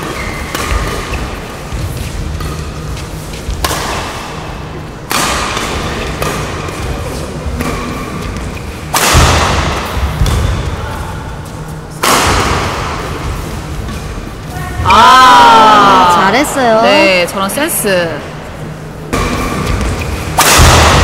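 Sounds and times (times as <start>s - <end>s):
rackets striking shuttlecock: 0.0s - 4.4s, 5.0s - 10.8s, 19.1s - 21.0s.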